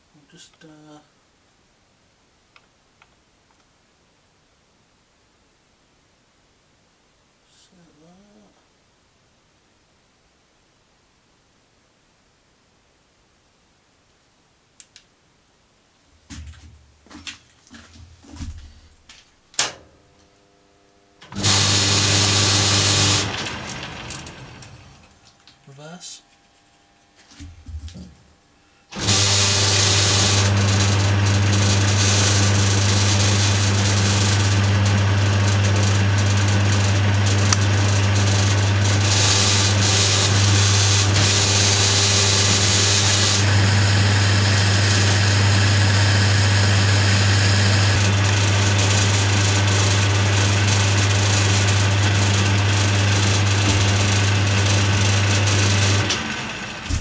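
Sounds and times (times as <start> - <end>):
lathe winding down: 21.2 - 25.1, 28.9 - 57.0
lathe humming: 21.2 - 25.2, 28.9 - 57.0.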